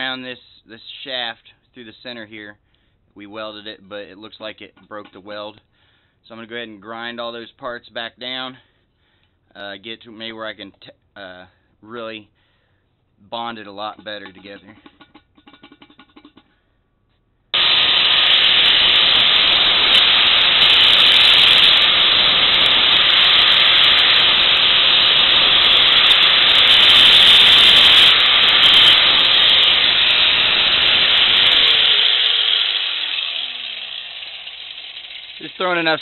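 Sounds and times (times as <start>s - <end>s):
grinder grinding metal: 17.6s - 36.0s.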